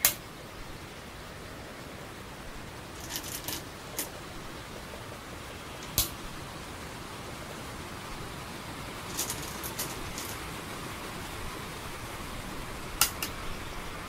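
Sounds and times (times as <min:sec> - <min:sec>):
steady hiss: 0:00.0 - 0:14.0
stones clicking on wooden board: 0:03.0 - 0:04.1, 0:09.1 - 0:10.4, 0:13.0 - 0:13.4.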